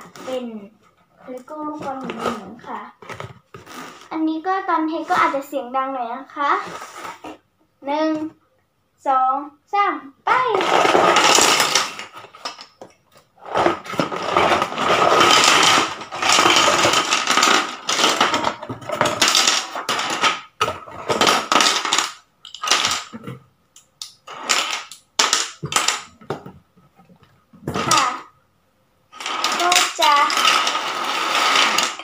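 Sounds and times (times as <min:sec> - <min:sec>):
plastic pieces clattering onto table: 0:10.5 - 0:26.5, 0:27.6 - 0:28.3, 0:29.2 - 0:32.0.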